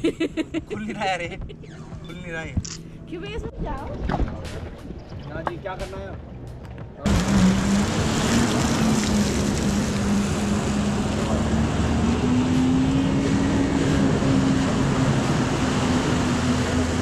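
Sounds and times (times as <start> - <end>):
jet ski engine droning: 5.7 - 17.0
water wash: 7.0 - 17.0.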